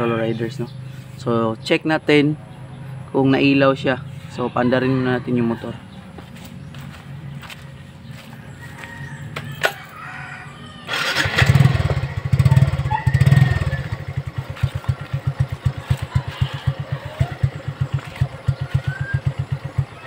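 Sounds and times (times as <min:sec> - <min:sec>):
motorcycle engine starting and revving: 0:05.8 - 0:10.0, 0:10.8 - 0:20.0.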